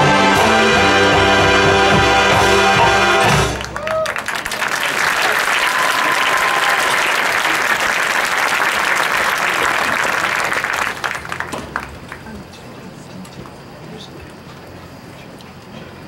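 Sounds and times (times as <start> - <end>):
stadium crowd applauding: 2.8 - 12.4.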